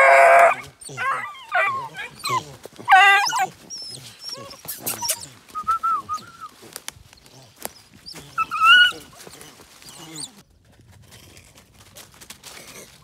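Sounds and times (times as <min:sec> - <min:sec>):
puppies whining and yapping: 0:00.0 - 0:06.6, 0:07.6 - 0:10.4.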